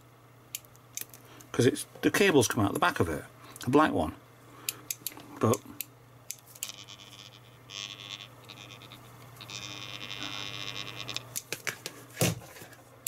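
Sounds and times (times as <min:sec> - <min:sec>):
pump hissing buzz: 0:06.6 - 0:11.4.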